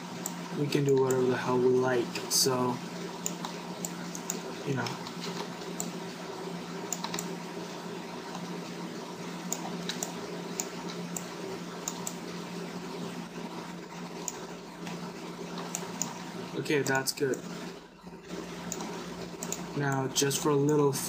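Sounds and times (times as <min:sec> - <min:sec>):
computer mouse and keyboard clicks: 0:00.2 - 0:01.3, 0:03.2 - 0:06.0, 0:06.8 - 0:07.3, 0:09.5 - 0:12.2, 0:14.0 - 0:15.0, 0:15.6 - 0:17.7, 0:18.3 - 0:20.9.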